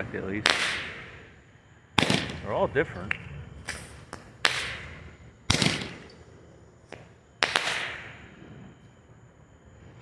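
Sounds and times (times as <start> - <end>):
firework hiss: 3.6 - 9.1.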